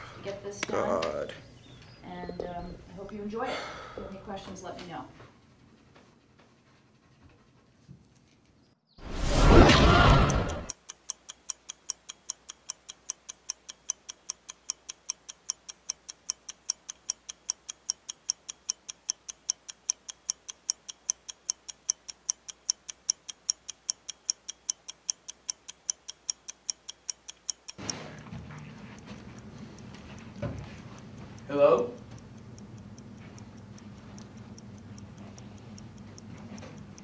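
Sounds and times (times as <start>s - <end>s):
clock ticking: 9.3s - 37.0s
room noise: 27.2s - 37.0s.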